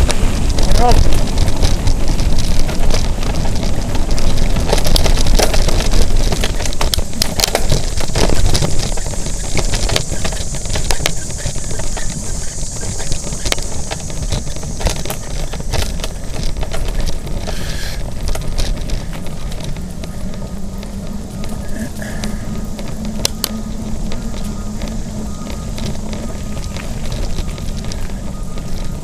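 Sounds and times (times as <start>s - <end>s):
bike rattling and clicking: 0.0s - 29.0s
wind rumbling on microphone: 0.0s - 29.0s.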